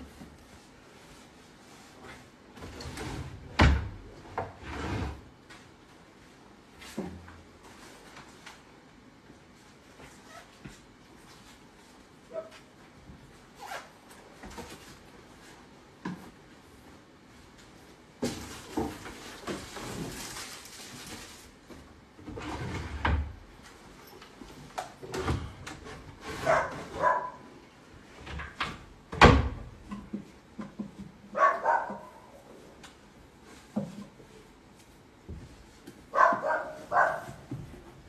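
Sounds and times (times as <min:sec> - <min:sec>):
wooden drawers opening and rummaging: 0:02.0 - 0:05.2, 0:21.2 - 0:23.5, 0:24.2 - 0:27.4
dog barking: 0:26.4 - 0:27.5, 0:31.4 - 0:32.4, 0:36.1 - 0:37.4.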